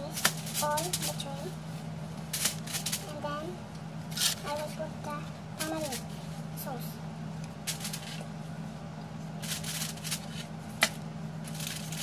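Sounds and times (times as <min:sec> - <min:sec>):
foil crinkling and rustling: 0:00.1 - 0:01.3, 0:02.2 - 0:03.1, 0:04.1 - 0:04.8, 0:07.6 - 0:08.3, 0:09.4 - 0:12.0.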